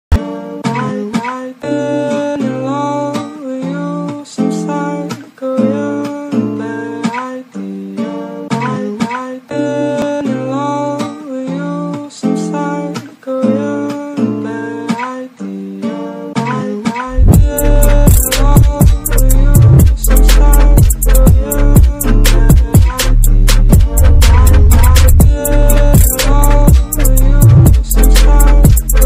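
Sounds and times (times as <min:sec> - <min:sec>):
acoustic guitar music: 0:00.1 - 0:29.0.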